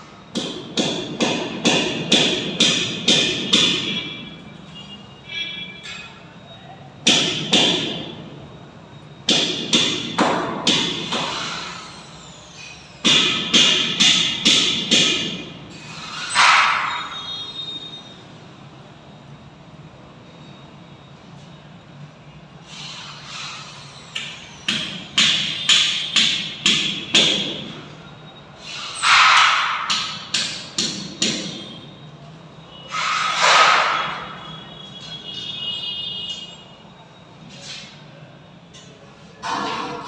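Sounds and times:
hammer striking metal: 0:00.3 - 0:04.3, 0:07.0 - 0:08.2, 0:09.2 - 0:11.8, 0:13.0 - 0:15.6, 0:16.2 - 0:17.2, 0:24.2 - 0:27.8, 0:29.0 - 0:31.8.

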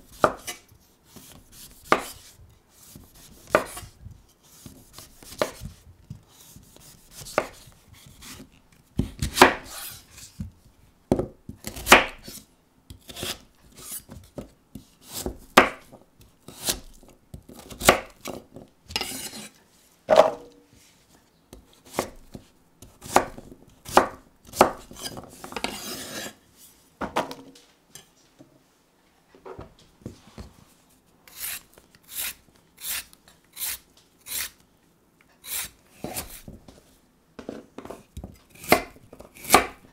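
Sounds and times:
knife cutting vegetable: 0:00.1 - 0:10.5, 0:11.6 - 0:19.6, 0:21.6 - 0:26.4, 0:31.3 - 0:34.6, 0:35.4 - 0:36.5, 0:37.9 - 0:39.8
vegetable peeler scraping carrot: 0:31.3 - 0:34.6, 0:35.4 - 0:36.5.

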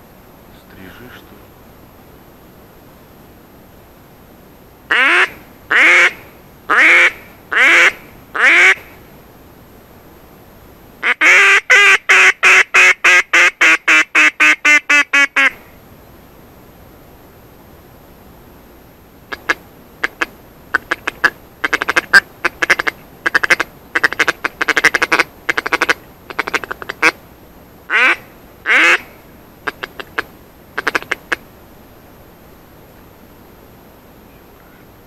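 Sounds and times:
duck call quacking: 0:04.9 - 0:08.9, 0:11.0 - 0:15.6, 0:19.3 - 0:27.2, 0:27.9 - 0:31.4.

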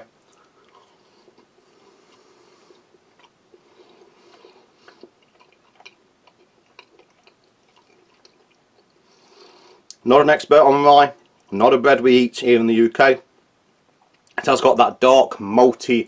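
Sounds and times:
chewing dry bread: 0:00.2 - 0:10.0, 0:11.1 - 0:11.5, 0:13.9 - 0:14.4.

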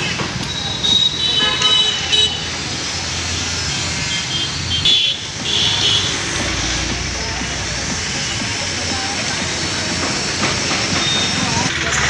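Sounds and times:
road traffic: 0:00.0 - 0:12.0
vehicle horn toots: 0:00.8 - 0:02.4.

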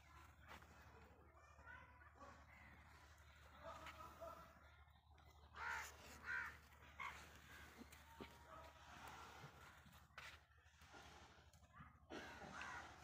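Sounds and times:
crow cawing: 0:05.6 - 0:07.6.

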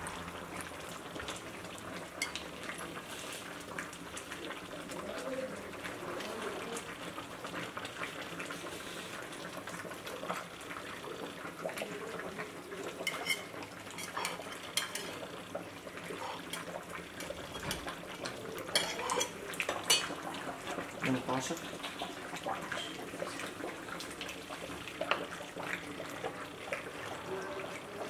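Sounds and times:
metal spoon scraping and clinking pot: 0:13.0 - 0:15.2, 0:18.7 - 0:20.1.

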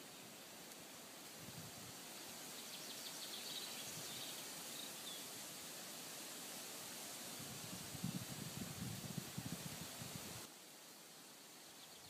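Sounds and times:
wind through woodland: 0:00.0 - 0:12.0
bird chirping: 0:02.2 - 0:05.3, 0:11.6 - 0:12.0.

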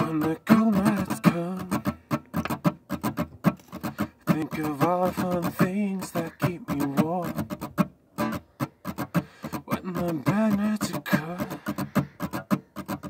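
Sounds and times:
man singing: 0:00.0 - 0:02.1, 0:03.9 - 0:07.8, 0:09.5 - 0:13.0
acoustic guitar playing: 0:00.0 - 0:13.0.

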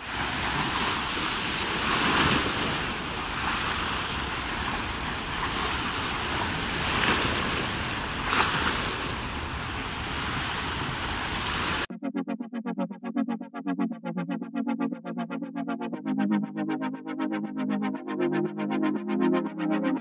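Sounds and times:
small waves washing over rocky shore: 0:00.0 - 0:11.9.

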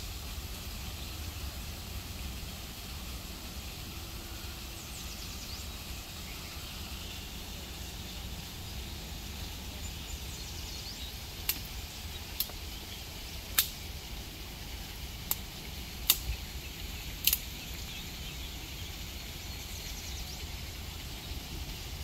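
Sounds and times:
small birds chirping: 0:04.3 - 0:22.0
dry sticks snapping: 0:11.4 - 0:11.7, 0:12.4 - 0:12.6, 0:13.5 - 0:13.8, 0:16.0 - 0:16.4, 0:17.2 - 0:17.5.

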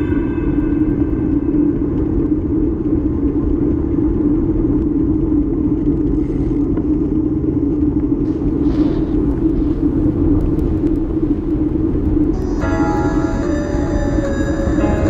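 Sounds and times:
wind rushing on microphone: 0:00.0 - 0:15.0
bicycle tyre noise: 0:00.7 - 0:14.9.

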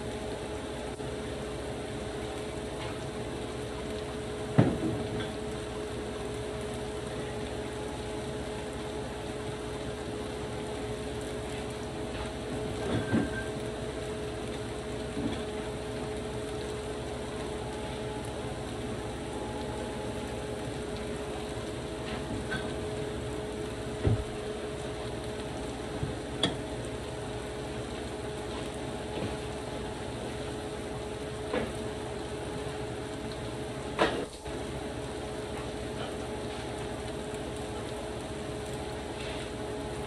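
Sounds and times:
steady hum: 0:00.0 - 0:40.0
pot bubbling: 0:00.1 - 0:40.0
stew sizzling in a frying pan: 0:33.4 - 0:39.8.

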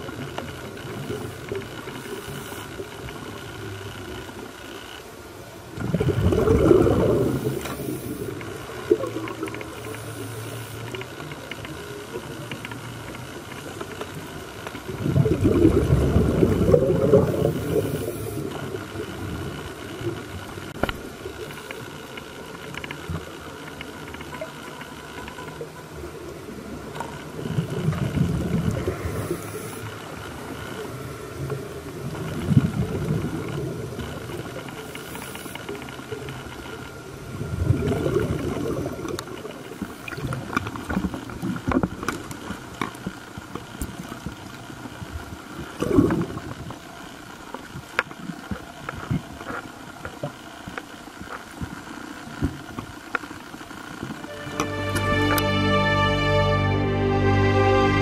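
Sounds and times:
underwater hiss: 0:01.0 - 0:02.9, 0:05.8 - 0:11.1, 0:15.0 - 0:19.2, 0:28.2 - 0:30.5, 0:34.7 - 0:35.9
diver exhaling bubbles: 0:05.8 - 0:09.5, 0:14.9 - 0:18.8, 0:37.5 - 0:39.1, 0:45.8 - 0:46.5.

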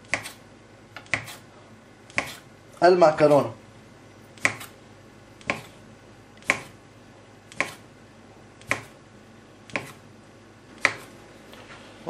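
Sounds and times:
knife chopping on stone countertop: 0:00.0 - 0:00.4, 0:01.0 - 0:01.4, 0:02.1 - 0:02.4, 0:04.4 - 0:04.8, 0:05.4 - 0:05.8, 0:06.4 - 0:06.8, 0:07.5 - 0:07.8, 0:08.6 - 0:09.0, 0:09.7 - 0:10.0, 0:10.8 - 0:11.1.

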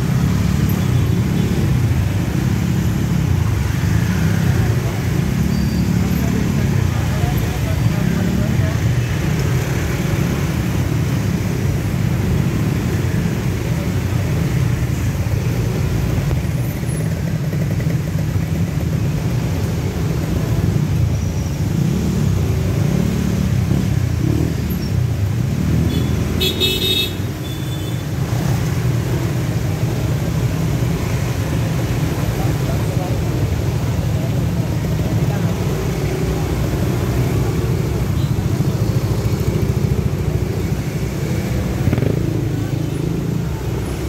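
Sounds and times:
engines rumbling in traffic jam: 0:00.0 - 0:44.0
vehicle horn honking: 0:26.0 - 0:27.9.

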